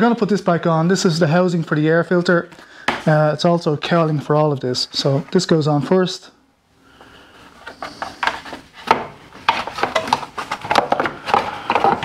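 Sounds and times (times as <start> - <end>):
plastic knocks and clicks: 8.2 - 12.0.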